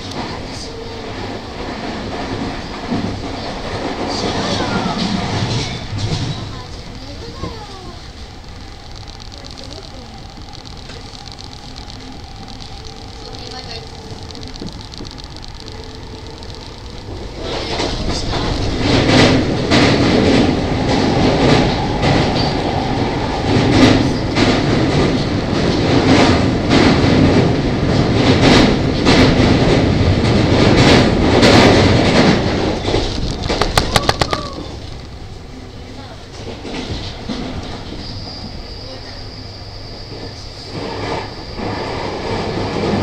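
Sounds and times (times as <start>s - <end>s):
rail clacks: 0.0s - 39.3s
train wheels rumbling on rail: 0.0s - 43.0s
rattle of clicks: 7.4s - 27.0s, 28.4s - 35.2s.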